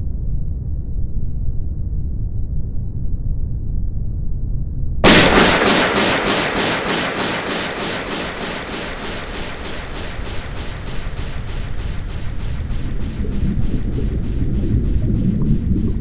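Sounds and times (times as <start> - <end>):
loud pulsing hiss: 5.0 - 16.0
low rumble: 5.0 - 16.0.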